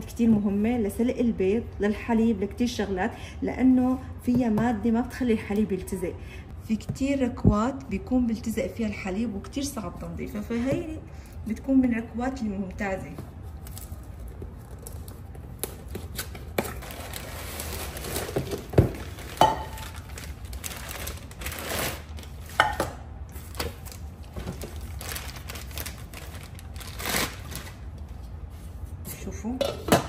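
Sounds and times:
packaging rustling: 13.6s - 22.5s, 23.4s - 27.9s.

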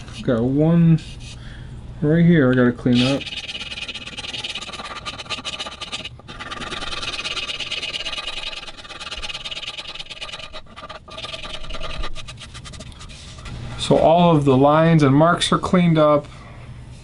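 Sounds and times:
file rasping across wood: 3.0s - 13.4s.

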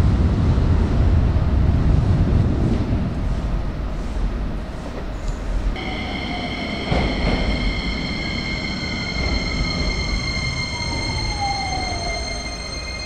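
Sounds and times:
train wheels rumbling: 0.0s - 13.0s
falling whine: 5.8s - 13.0s
train brake squeal: 5.8s - 13.0s.

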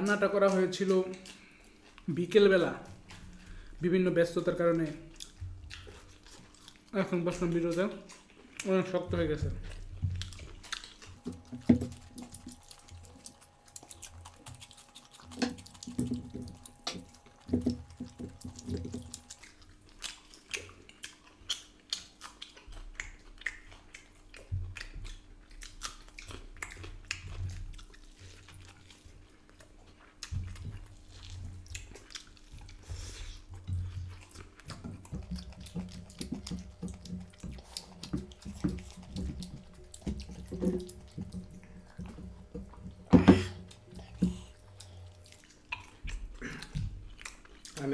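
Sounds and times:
wet chewing and lip smacking: 0.0s - 47.9s.

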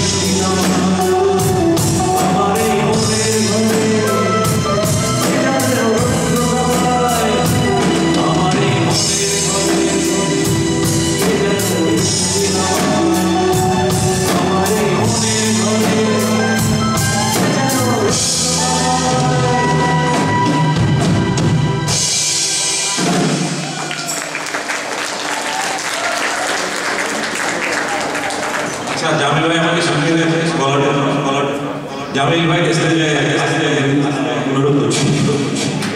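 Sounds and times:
person singing: 0.0s - 22.2s
live rock band playing: 0.0s - 28.9s.

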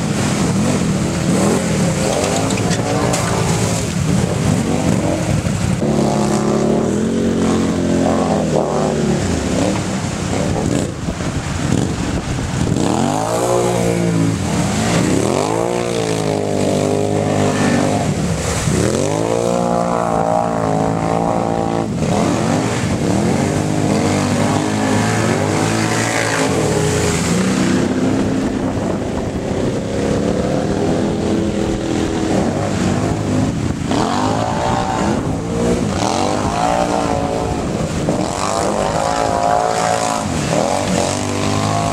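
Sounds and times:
water hissing and splashing: 0.0s - 6.0s
atv engine revving: 0.0s - 41.9s.

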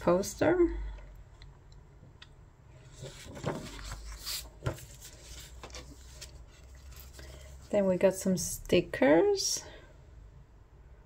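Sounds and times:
paper rustling and rubbing: 2.8s - 7.9s.

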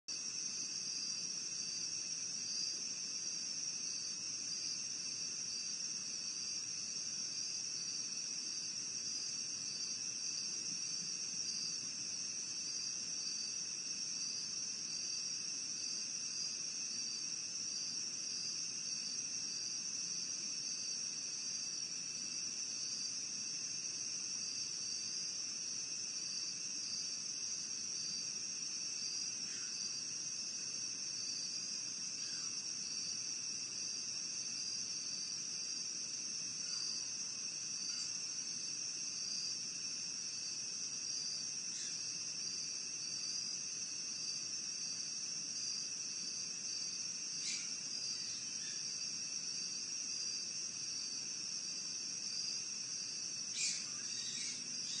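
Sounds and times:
high insect trilling: 53.5s - 55.0s.

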